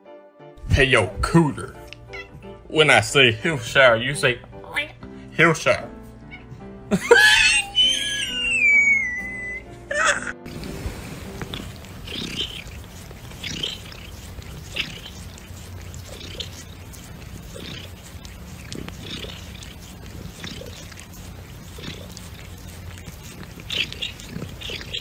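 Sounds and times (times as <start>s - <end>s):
cat purring: 10.5s - 25.0s.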